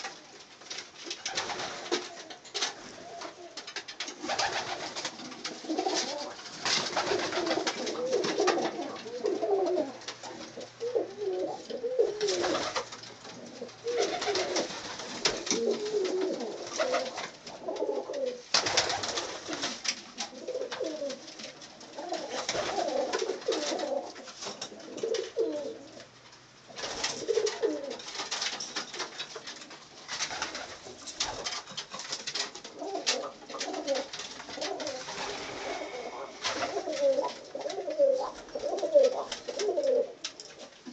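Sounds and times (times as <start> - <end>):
pigeons cooing: 1.4 - 26.1, 26.7 - 28.1, 32.6 - 40.9
short scratchy noises: 34.1 - 37.4.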